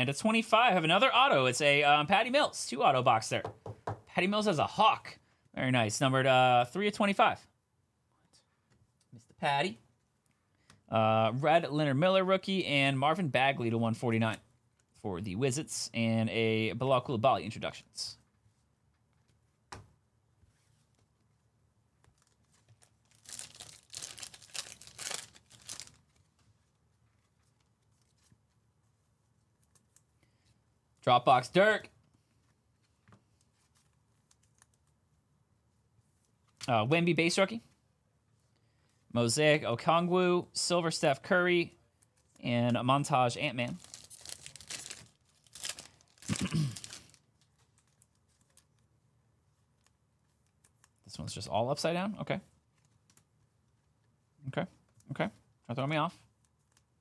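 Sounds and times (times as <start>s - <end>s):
wrapper tearing and crumpling: 22.2s - 26.0s, 43.7s - 48.6s
cards ticking as handled: 33.0s - 35.0s, 52.7s - 53.5s, 56.4s - 57.0s.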